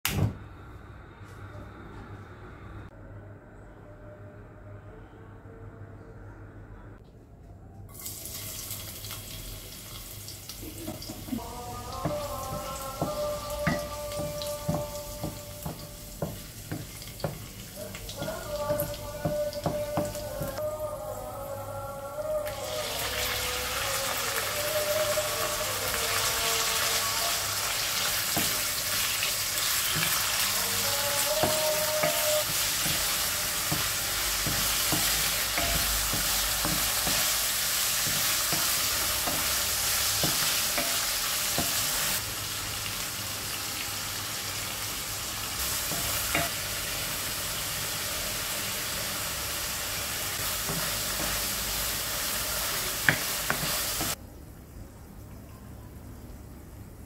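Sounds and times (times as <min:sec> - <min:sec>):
chicken sizzling in hot oil: 0:07.9 - 0:11.4, 0:22.5 - 0:54.2
wooden spoon tapping a pan: 0:12.0 - 0:17.5, 0:31.3 - 0:37.4, 0:53.0 - 0:54.2.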